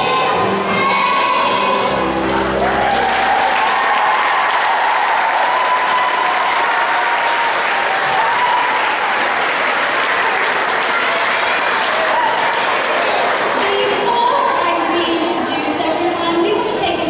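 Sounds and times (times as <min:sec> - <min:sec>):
music: 0:00.0 - 0:04.8
audience applauding: 0:02.2 - 0:14.0.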